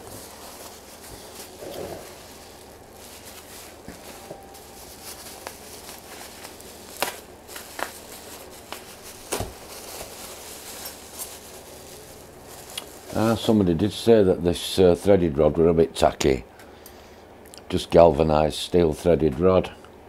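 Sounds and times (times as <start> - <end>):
bubble wrap snaps: 0.0 - 13.4
bubble wrap crinkling: 0.0 - 14.3.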